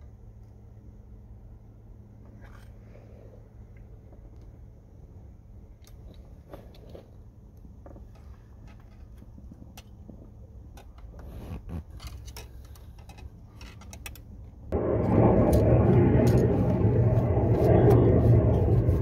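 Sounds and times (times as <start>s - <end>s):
loud rushing rumble: 14.7s - 19.0s.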